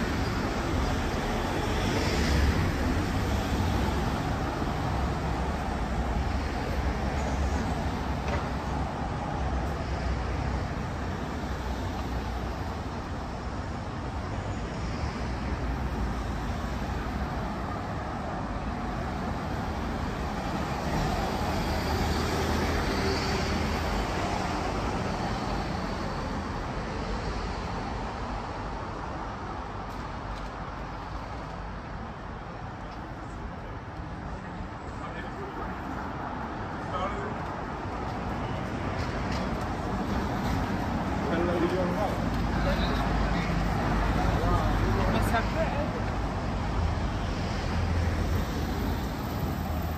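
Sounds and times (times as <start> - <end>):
road traffic rumble: 0.0 - 49.9.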